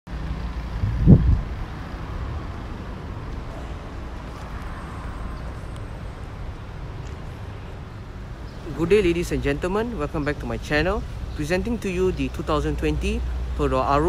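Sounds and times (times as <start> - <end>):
low vehicle rumble: 0.1 - 4.2.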